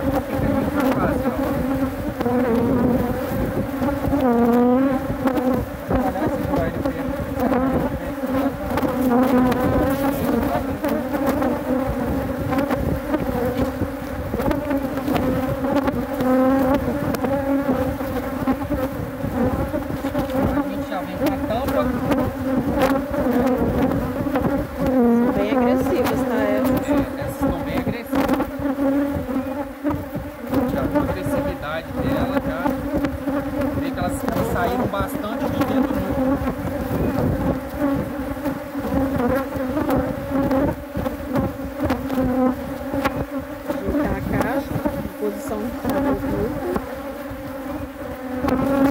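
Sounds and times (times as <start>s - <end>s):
honeybees buzzing: 0.0s - 48.9s
light knocks on wooden hive: 0.0s - 48.9s.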